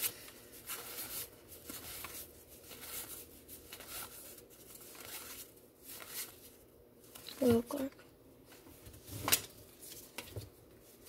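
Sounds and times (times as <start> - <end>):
cards sliding and flipping: 0.0 - 7.4.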